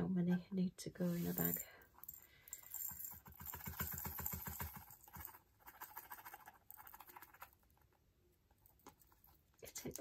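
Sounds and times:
tiny plastic beads rattling: 1.3s - 7.5s.

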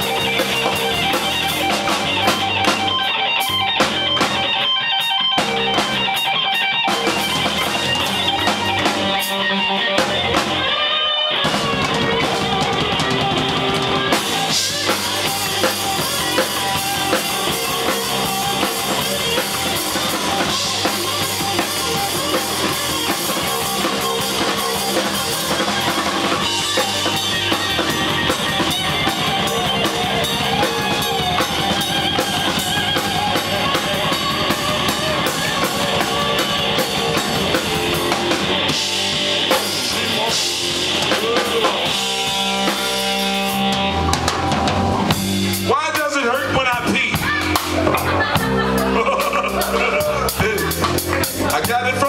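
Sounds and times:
drum kit playing: 0.0s - 52.0s
loud electric guitar: 0.0s - 52.0s.

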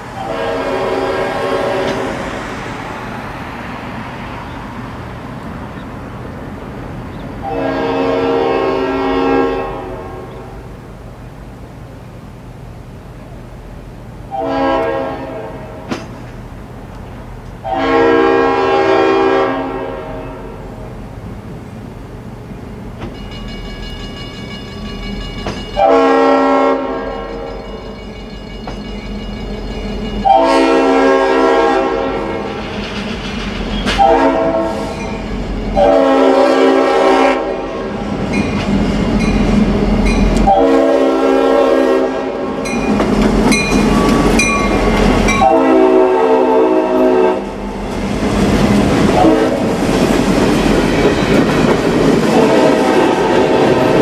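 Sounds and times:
locomotive air horn blasts: 0.2s - 2.3s, 7.4s - 10.7s, 14.3s - 15.9s, 17.6s - 20.8s, 25.8s - 27.5s, 30.2s - 32.6s, 33.8s - 35.2s, 35.8s - 38.0s, 40.4s - 42.7s, 44.0s - 47.6s, 49.2s - 49.7s, 52.3s - 54.0s
train wheels clacking on rail joints: 15.8s - 17.6s, 22.9s - 25.9s, 27.2s - 30.4s, 32.3s - 35.9s, 38.2s - 40.6s, 42.6s - 45.5s, 47.9s - 54.0s.

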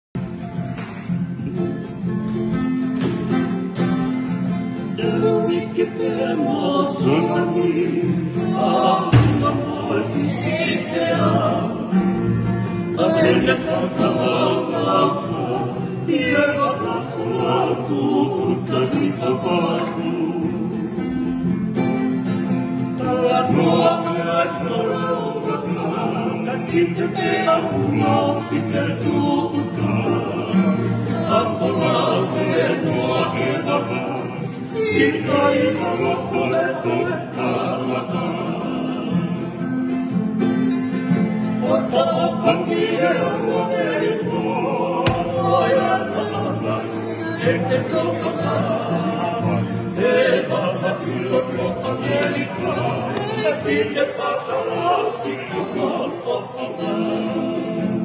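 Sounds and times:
strummed acoustic guitars: 0.2s - 58.0s
men singing a hymn: 4.8s - 21.6s, 22.8s - 39.8s, 41.5s - 58.0s
sharp thump: 9.1s - 9.6s, 45.0s - 45.5s.

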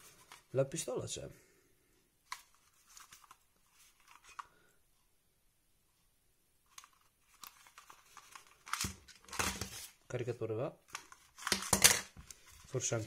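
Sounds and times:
light rustles of handling: 0.0s - 0.6s, 2.2s - 5.1s.

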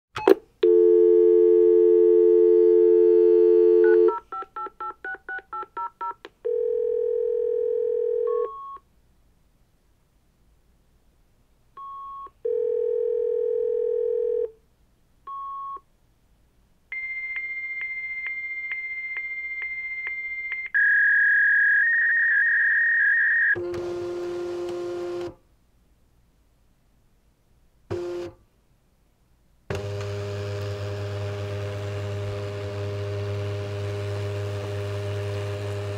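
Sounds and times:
keypad dialing tones: 0.2s - 8.8s
dial tone: 0.6s - 4.2s, 6.5s - 8.8s, 12.1s - 14.5s
phone line ringing tone: 0.6s - 4.2s, 6.5s - 8.8s, 12.5s - 14.5s
fax answer tone: 0.7s - 8.8s.

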